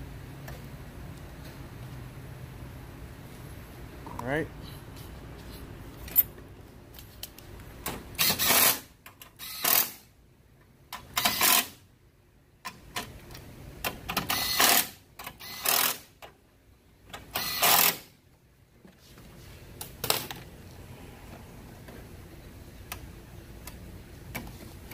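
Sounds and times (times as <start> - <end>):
power tool driving fasteners: 8.2 - 10.1, 11.0 - 11.8, 14.1 - 16.3, 17.1 - 18.1.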